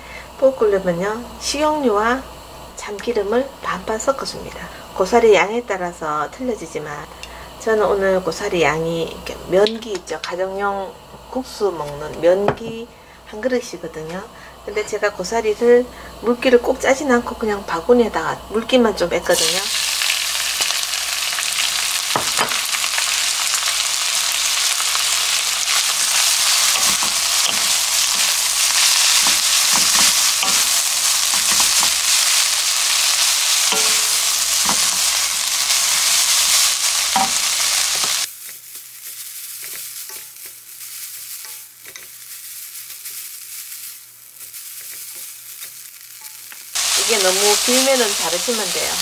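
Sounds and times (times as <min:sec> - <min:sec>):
fern sizzling in hot oil: 0:00.0 - 0:49.0
chopsticks tapping pan: 0:25.7 - 0:43.3, 0:44.4 - 0:46.7.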